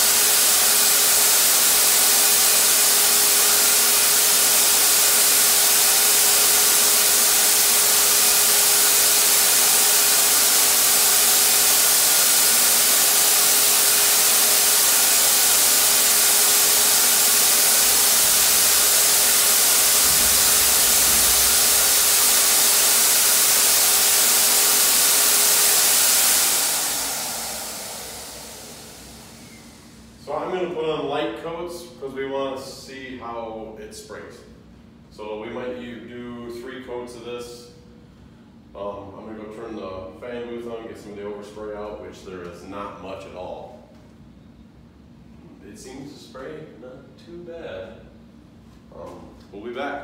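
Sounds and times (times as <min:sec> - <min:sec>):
air rushing through spray gun: 0:00.0 - 0:30.3
turbine blower hum: 0:00.0 - 0:31.2.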